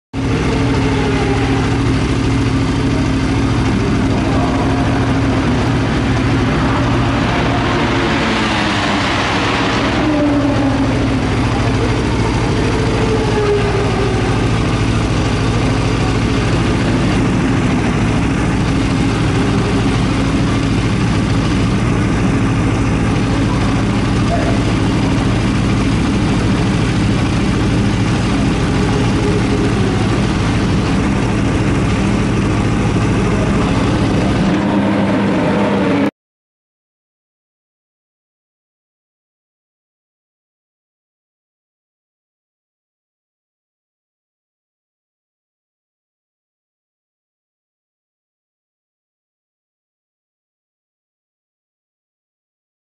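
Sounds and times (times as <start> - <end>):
motorcycle engine idling: 0.2 - 8.4, 9.9 - 36.0.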